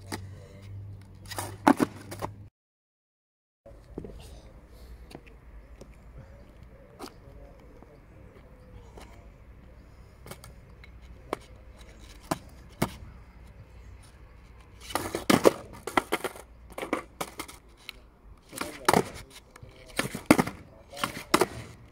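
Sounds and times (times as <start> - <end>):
skateboard clattering on asphalt: 1.3 - 2.3, 14.7 - 17.7, 18.5 - 21.9
skateboard taps: 12.1 - 13.1, 14.8 - 17.6, 18.5 - 19.2, 20.0 - 21.8.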